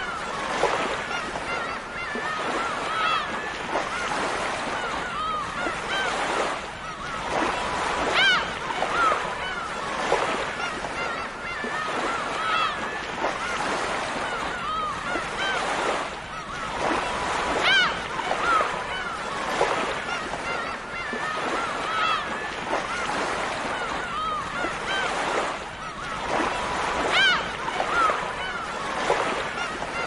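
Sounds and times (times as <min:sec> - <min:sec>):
gulls calling: 0:00.0 - 0:30.0
surf washing: 0:00.0 - 0:30.0.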